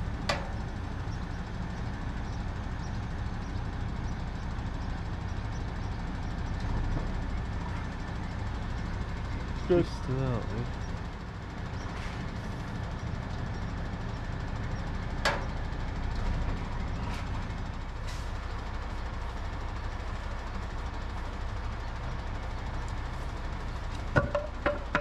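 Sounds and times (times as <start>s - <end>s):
diesel engine idling: 0.0s - 25.0s
sharp metallic knock: 24.2s - 25.0s.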